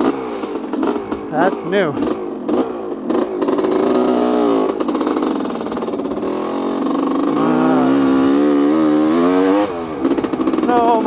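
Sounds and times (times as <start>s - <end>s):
two-stroke motorcycle engine revving: 0.0s - 11.0s.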